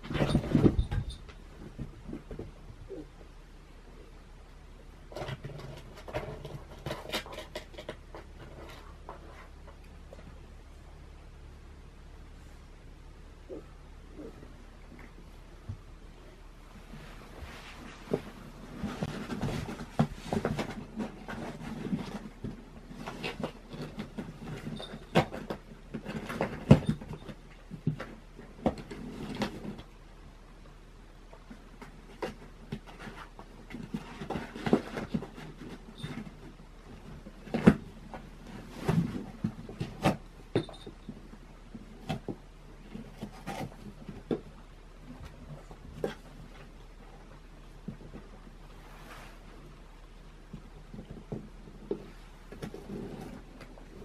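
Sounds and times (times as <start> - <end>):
cardboard boxes rustling and scraping: 0.0 - 2.6, 16.7 - 30.0, 31.5 - 54.0.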